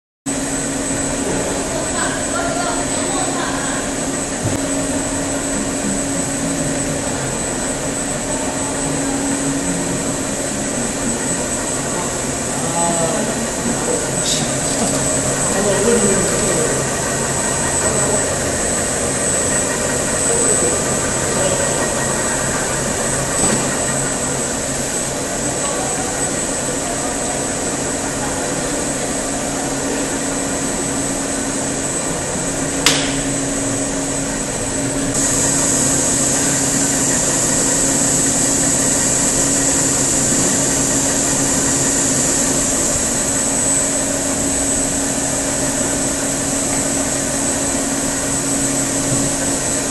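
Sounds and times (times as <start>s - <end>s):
machine hum with high whine: 0.3s - 49.9s
sharp click: 32.8s - 33.3s.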